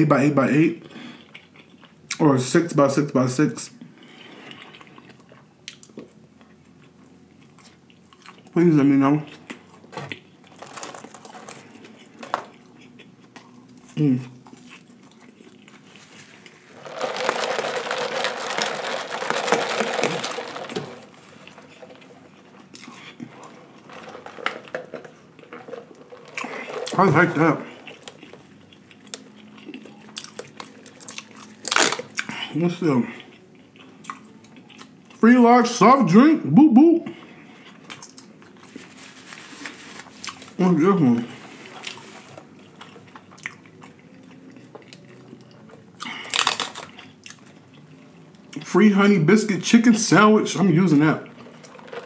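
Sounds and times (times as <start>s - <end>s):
chewing: 1.1s - 2.2s, 4.1s - 8.6s, 9.2s - 16.6s, 21.2s - 24.0s, 27.7s - 32.4s, 33.1s - 35.2s, 41.7s - 48.6s
paper rustling: 10.5s - 12.5s, 15.8s - 22.2s, 38.6s - 40.3s, 51.4s - 52.0s.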